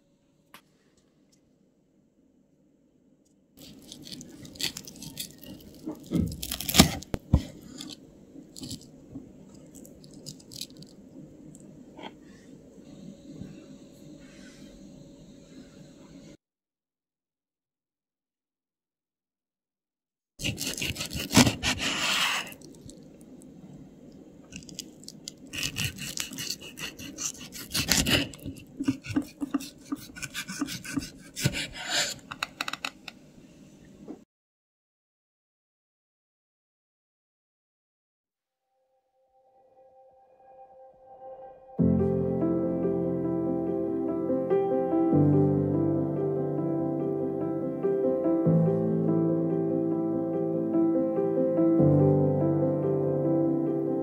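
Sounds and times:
miniature utensils scraping: 0:03.6 - 0:08.0, 0:20.4 - 0:22.8, 0:24.5 - 0:33.1
crisp crunching and crackling: 0:03.6 - 0:08.9, 0:09.5 - 0:11.0, 0:20.4 - 0:23.2, 0:24.5 - 0:29.0.

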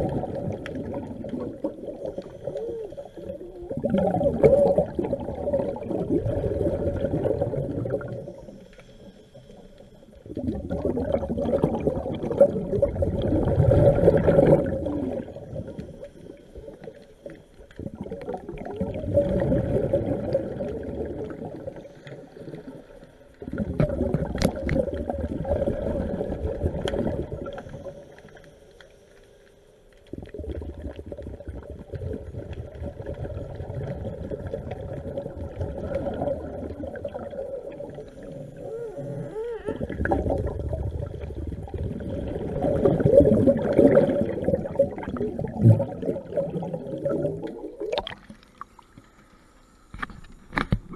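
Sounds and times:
diver exhaling bubbles underwater: 0:00.0 - 0:08.7, 0:10.2 - 0:28.0, 0:30.1 - 0:48.6.

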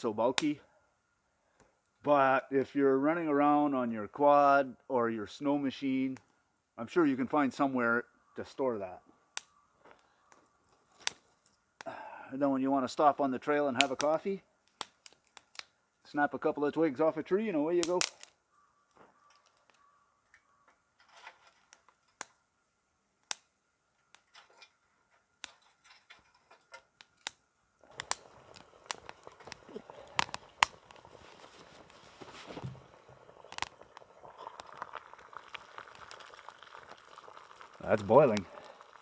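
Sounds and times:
wood fire hissing and crackling: 0:00.0 - 0:19.9, 0:21.0 - 0:39.0
twigs snapping: 0:10.3 - 0:11.6, 0:13.8 - 0:15.8, 0:17.8 - 0:18.4, 0:27.0 - 0:32.8, 0:33.5 - 0:36.8.

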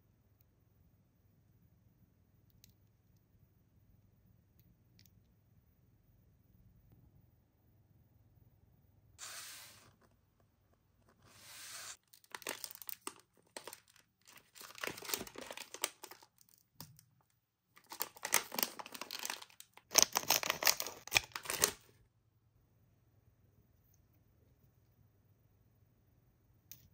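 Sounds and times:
foil packet crinkling: 0:12.0 - 0:16.6, 0:17.8 - 0:21.9.

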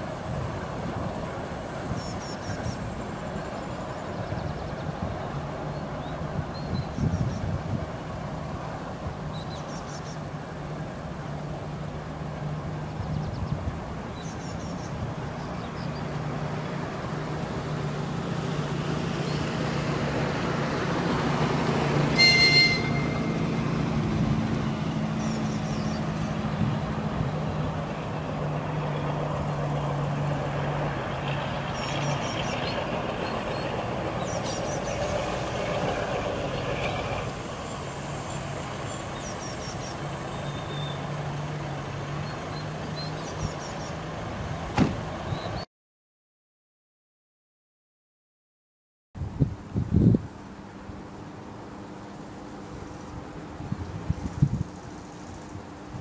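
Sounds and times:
locomotive engine drone: 0:00.0 - 0:45.6, 0:49.2 - 0:56.0
high-pitched horn toot: 0:22.1 - 0:23.8.

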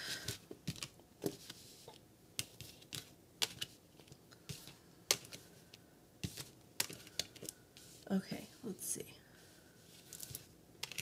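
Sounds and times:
cards clicking and snapping: 0:02.4 - 0:05.4, 0:06.2 - 0:07.6, 0:10.1 - 0:11.0.

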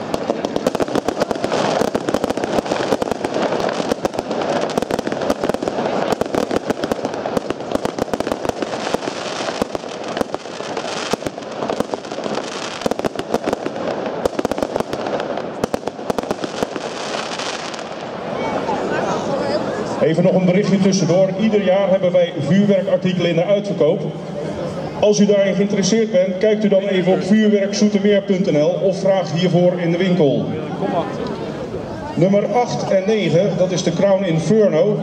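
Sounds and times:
firework bangs and crackles: 0:00.0 - 0:18.8.

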